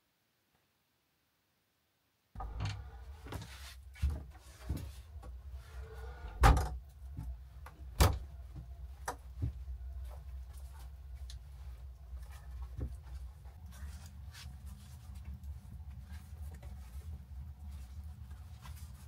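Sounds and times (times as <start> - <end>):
shuffling footsteps: 2.4 - 19.0
wooden door banging shut: 6.4 - 6.8.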